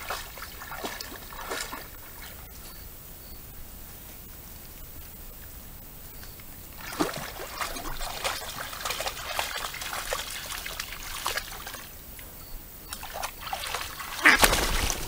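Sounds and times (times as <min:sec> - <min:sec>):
animal splashing through water: 0:00.0 - 0:02.6, 0:06.7 - 0:12.1, 0:12.8 - 0:15.0.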